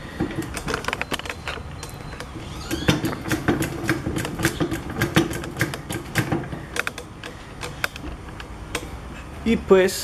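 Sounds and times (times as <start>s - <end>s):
metallic clicks of jack pump: 3.1s - 9.0s.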